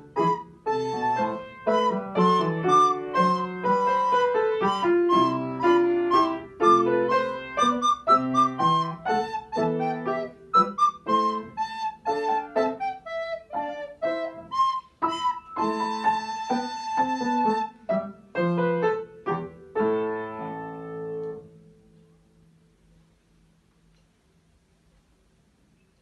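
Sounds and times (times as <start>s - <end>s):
recorder playing a melody: 0.0s - 17.8s
piano accompaniment: 0.0s - 22.9s.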